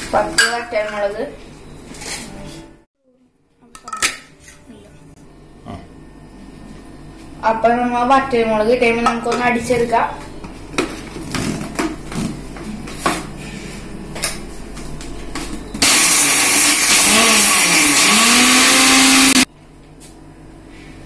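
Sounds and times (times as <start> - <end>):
mixer grinder grinding spices: 15.8 - 19.5.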